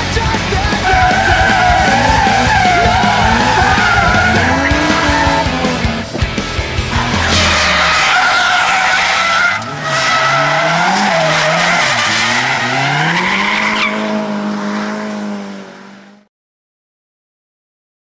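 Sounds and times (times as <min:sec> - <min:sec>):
car engine revving: 0:00.0 - 0:16.3
tyres squealing: 0:00.5 - 0:14.2.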